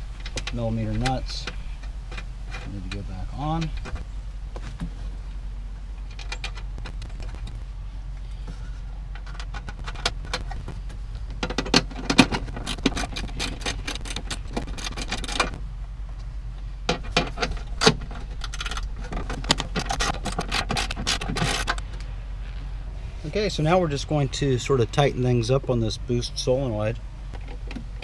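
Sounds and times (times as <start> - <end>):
metallic clicks of nuts and screws: 0.2 - 4.0, 6.0 - 7.6, 9.1 - 10.5, 11.3 - 15.6, 16.9 - 22.1.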